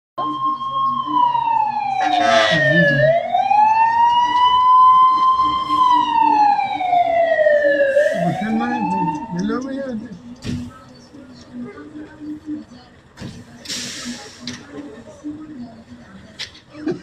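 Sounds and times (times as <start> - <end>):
fire engine siren wailing: 0.2 - 9.8.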